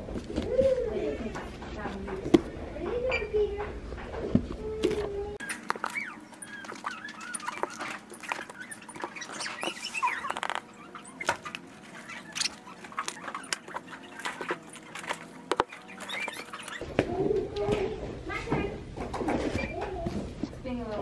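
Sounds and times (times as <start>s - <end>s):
sped-up squeaky chatter: 5.4s - 16.8s.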